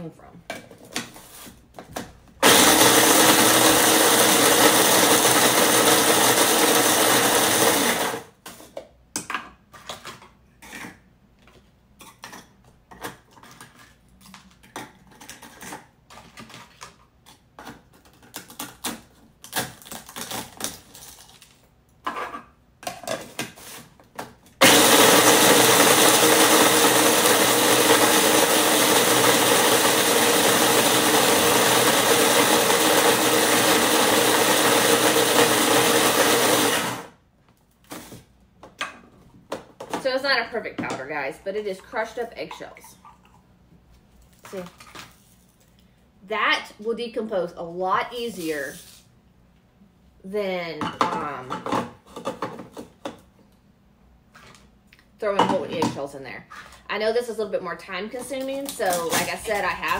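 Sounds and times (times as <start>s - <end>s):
food processor motor whirring: 2.4s - 8.3s, 24.6s - 37.1s.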